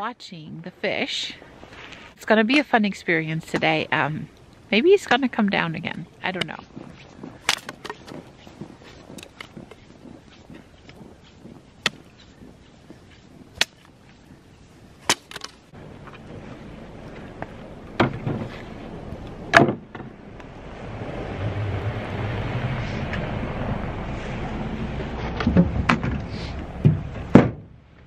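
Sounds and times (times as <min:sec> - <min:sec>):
hatchet striking wood: 0:13.6 - 0:13.9
pickup truck driving on snow: 0:20.2 - 0:27.2
loud knocks: 0:26.8 - 0:27.8.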